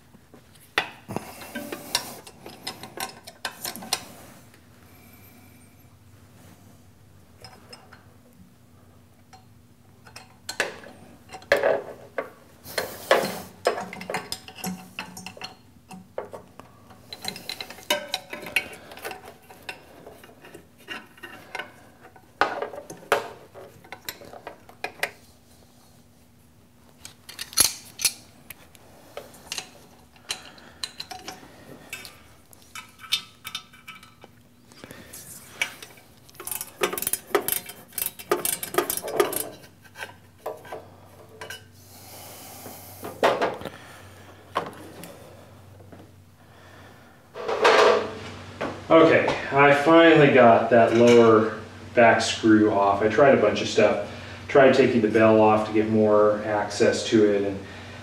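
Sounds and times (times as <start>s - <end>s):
wrench clinking on metal nuts: 35.9s - 39.6s.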